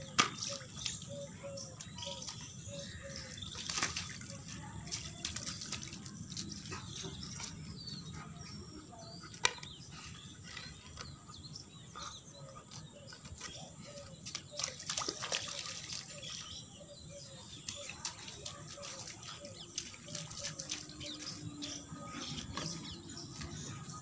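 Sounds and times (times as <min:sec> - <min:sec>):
dog paws splashing in water: 0:00.0 - 0:11.6, 0:12.9 - 0:24.0
birds chirping: 0:00.0 - 0:24.0.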